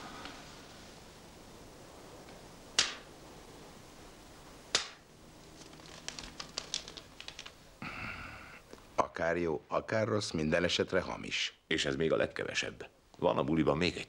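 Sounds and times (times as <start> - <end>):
paper note crinkling: 5.3 - 7.6.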